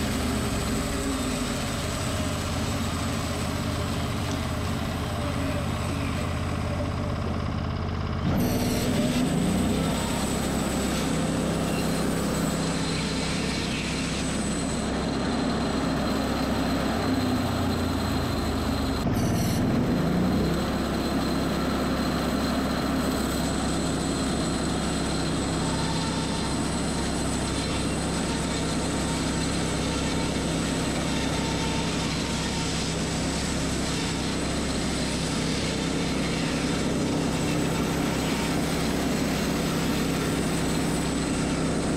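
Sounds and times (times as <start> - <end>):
band sawmill cutting logs: 0.0 - 41.9.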